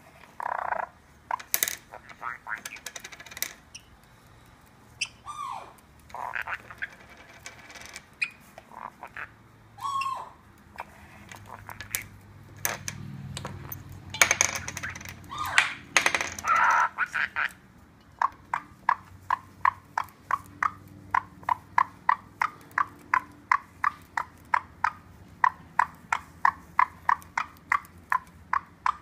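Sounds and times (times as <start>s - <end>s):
claws clicking on marble: 0.4s - 4.8s, 5.8s - 8.8s, 10.8s - 17.0s
parrot squawks: 1.9s - 2.8s, 5.0s - 7.0s, 8.2s - 11.8s, 16.4s - 17.6s.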